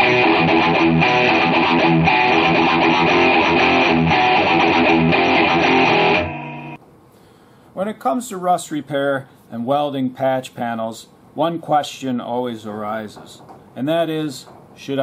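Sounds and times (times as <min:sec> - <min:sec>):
guitar music with steady beat: 0:00.0 - 0:06.8.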